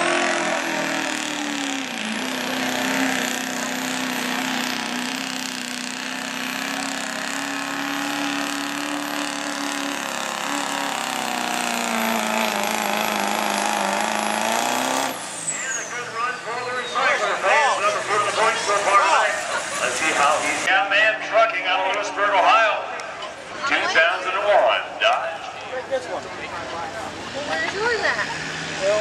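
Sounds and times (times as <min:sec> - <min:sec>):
diesel engine running flat out: 0:00.0 - 0:20.7.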